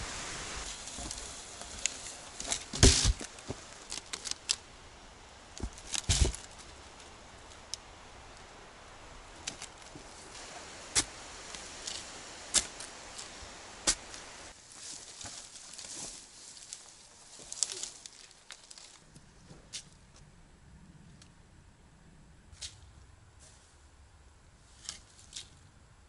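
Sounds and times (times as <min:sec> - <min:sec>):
crackling bursts with dull thud: 0:00.0 - 0:04.6, 0:05.5 - 0:07.6, 0:09.4 - 0:14.6
dry twigs snapping: 0:00.7 - 0:04.7, 0:05.5 - 0:07.9, 0:09.4 - 0:19.1.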